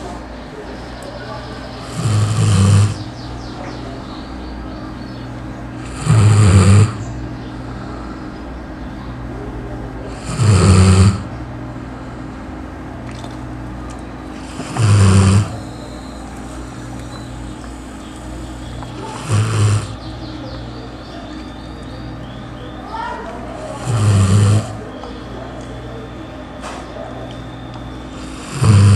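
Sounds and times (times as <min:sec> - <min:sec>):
steady background hum: 0:00.0 - 0:28.9
dog snoring loudly: 0:01.8 - 0:03.2, 0:05.8 - 0:07.1, 0:10.1 - 0:11.4, 0:14.4 - 0:16.0, 0:18.6 - 0:20.1, 0:23.6 - 0:24.9, 0:28.1 - 0:28.9.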